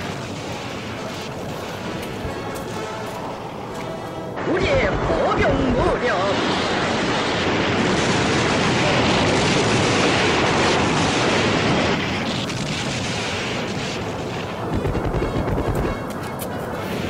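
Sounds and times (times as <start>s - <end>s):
steady rushing noise: 0.0s - 17.0s
rocket launches roaring: 4.8s - 15.8s.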